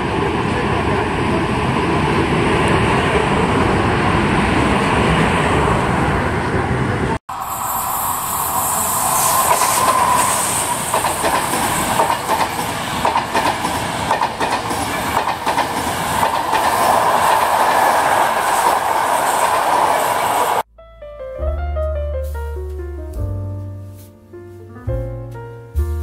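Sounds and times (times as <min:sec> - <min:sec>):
train rolling hum: 0:00.0 - 0:20.7
train wheels clicking over rail joints: 0:09.1 - 0:20.6.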